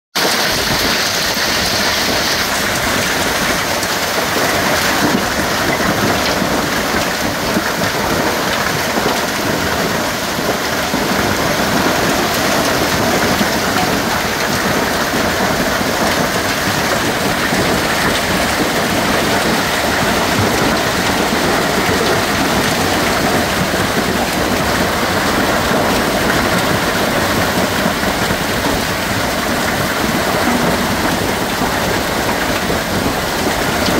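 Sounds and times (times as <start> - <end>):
hail and rain pelting foliage: 0.2 - 33.9.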